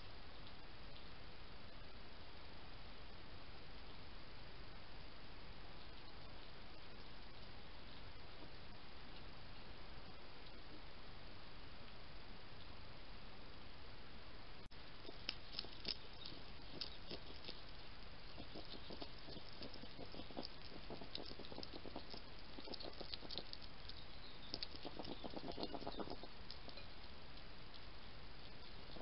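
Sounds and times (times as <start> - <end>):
steady hiss: 0.0 - 29.0
hedgehog crunching dry food: 14.8 - 29.0.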